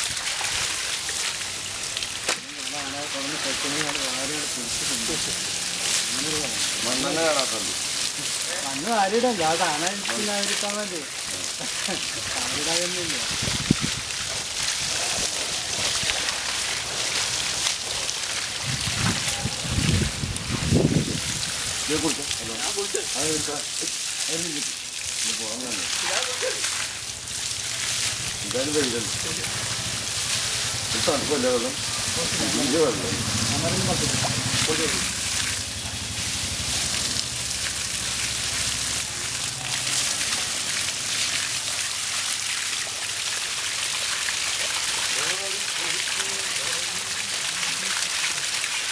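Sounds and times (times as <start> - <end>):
hose water spraying and splashing: 0.0 - 48.9.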